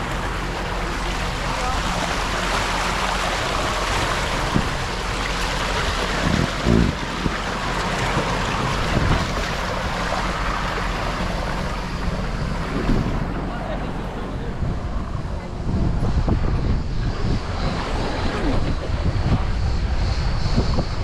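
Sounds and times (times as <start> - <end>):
water rushing down slide: 0.0 - 15.0
wind noise on microphone: 0.0 - 21.0.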